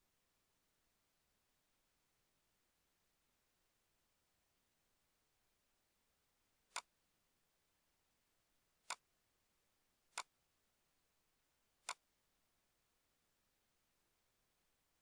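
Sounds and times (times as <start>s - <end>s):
computer mouse clicks: 6.7s - 6.9s, 10.1s - 10.3s, 11.8s - 12.0s.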